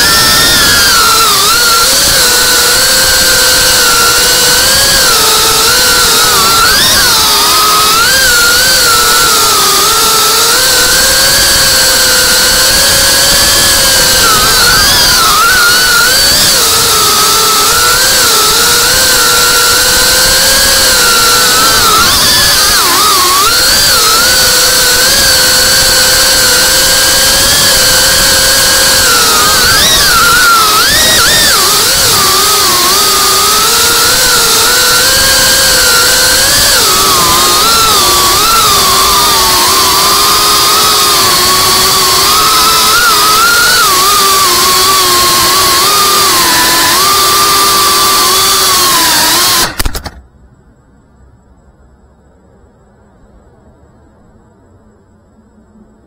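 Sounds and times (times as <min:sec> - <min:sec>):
quadcopter motors whining: 0:00.0 - 0:50.2.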